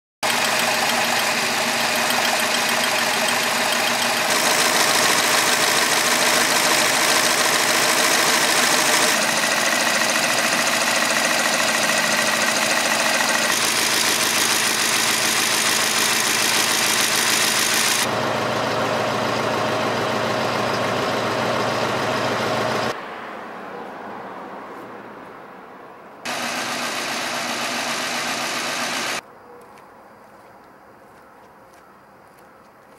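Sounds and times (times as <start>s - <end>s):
car engine idling: 0.2s - 23.0s, 26.3s - 29.2s.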